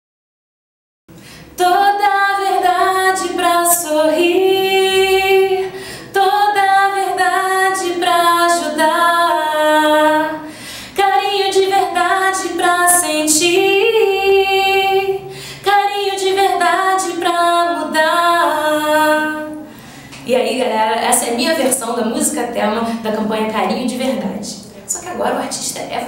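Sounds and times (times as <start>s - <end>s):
woman singing: 1.6s - 24.5s.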